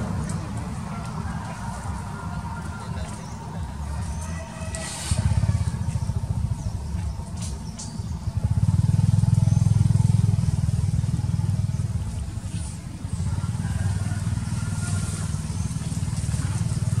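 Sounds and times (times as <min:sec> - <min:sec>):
engine rumbling: 0:00.0 - 0:17.0.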